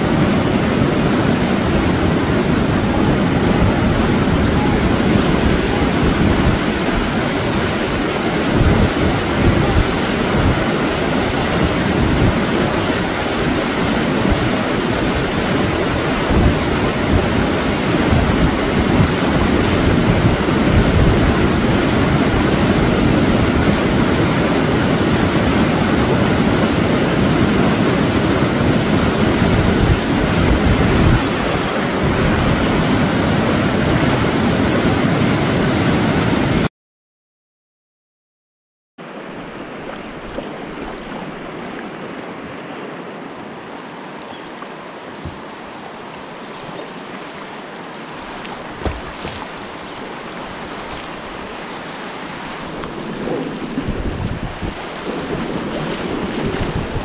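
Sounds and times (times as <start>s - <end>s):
rapids rushing: 0.0s - 36.7s, 39.0s - 57.0s
wind buffeting microphone: 0.0s - 36.7s, 48.2s - 57.0s.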